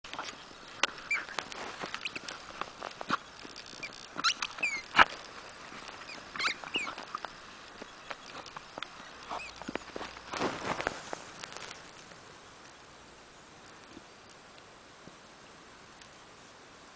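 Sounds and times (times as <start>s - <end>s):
paws and ball crunching snow: 0.1s - 12.1s
short high squeaks: 1.0s - 2.3s, 3.0s - 5.2s, 5.8s - 7.3s, 8.0s - 10.3s.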